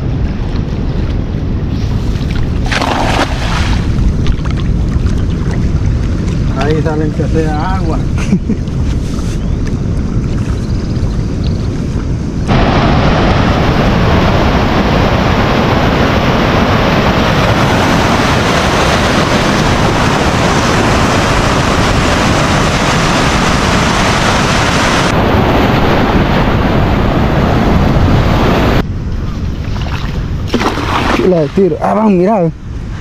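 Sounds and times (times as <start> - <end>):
wind buffeting microphone: 0.0 - 33.0
ocean surf breaking: 1.8 - 4.2, 12.5 - 28.8.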